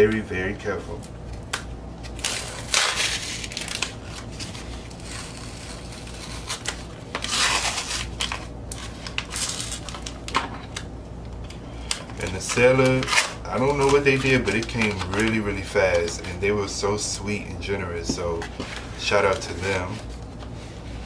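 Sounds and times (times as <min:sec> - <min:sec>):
paper mailer crinkling: 0:02.0 - 0:10.8, 0:11.9 - 0:17.1, 0:18.3 - 0:20.5.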